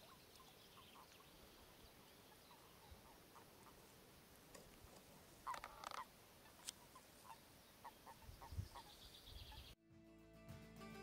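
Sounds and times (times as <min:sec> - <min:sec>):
toads croaking: 0:05.4 - 0:09.0
music: 0:09.8 - 0:11.0.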